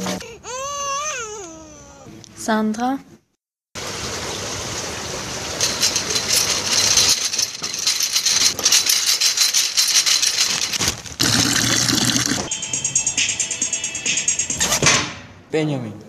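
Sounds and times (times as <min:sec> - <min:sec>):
small hard objects rattling: 0:05.6 - 0:12.5.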